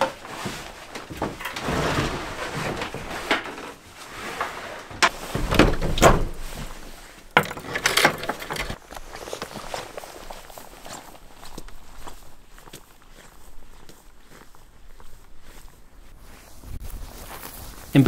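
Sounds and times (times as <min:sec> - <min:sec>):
heavy thuds: 0:00.0 - 0:08.8
wooden door scraping and knocking: 0:00.0 - 0:08.8.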